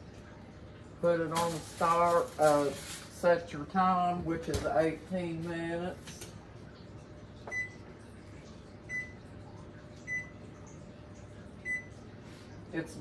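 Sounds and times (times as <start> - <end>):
control panel beeps: 7.5 - 7.8, 8.9 - 9.2, 10.0 - 10.3, 11.6 - 11.9.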